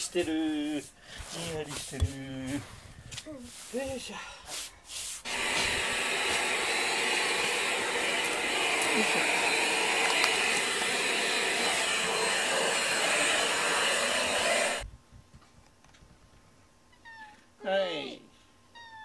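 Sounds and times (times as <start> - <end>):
vacuum cleaner running: 5.3 - 14.8.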